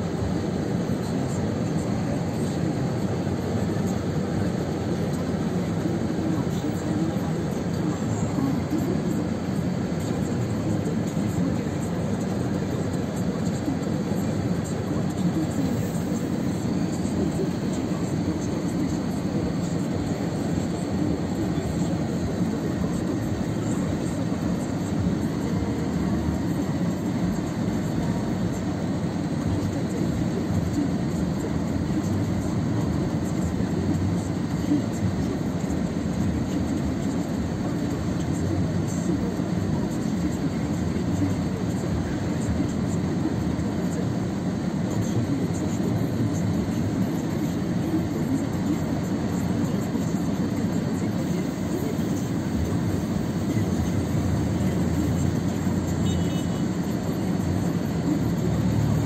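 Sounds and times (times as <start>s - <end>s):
diesel truck engine rumbling: 0.0s - 39.9s.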